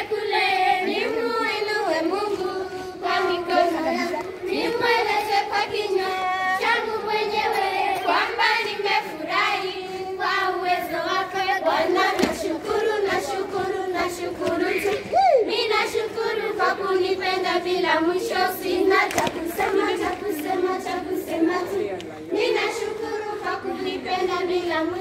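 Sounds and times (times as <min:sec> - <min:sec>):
children singing in chorus: 0:00.0 - 0:25.0
hand clapping: 0:19.0 - 0:20.6.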